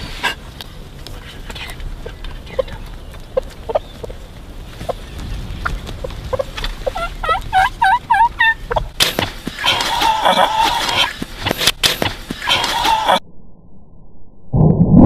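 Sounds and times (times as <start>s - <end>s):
bird calling: 1.6s - 11.2s.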